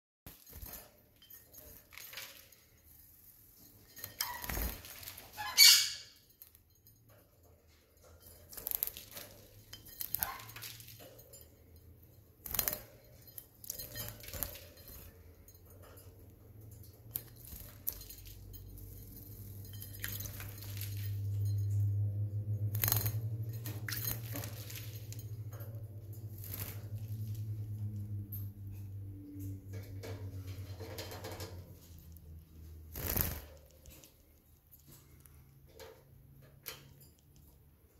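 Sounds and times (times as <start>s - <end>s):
claws and beak clinking on dish: 3.6s - 26.1s
low steady hum: 6.0s - 37.9s
bird wings fluttering: 32.9s - 33.7s.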